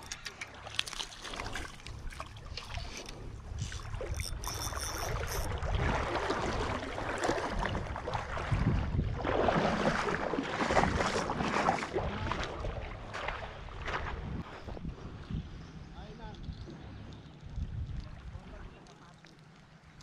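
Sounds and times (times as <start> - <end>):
splashing in shallow water: 0.0 - 14.5
wind rumbling on microphone: 1.4 - 18.7.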